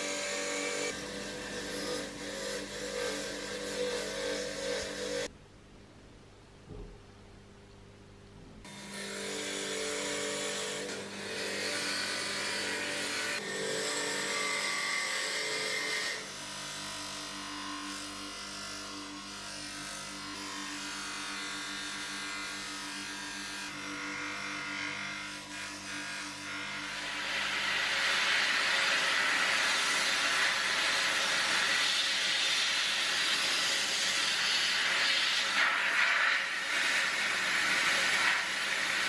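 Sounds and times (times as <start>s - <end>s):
bench grinder motor hum: 0.0s - 5.3s.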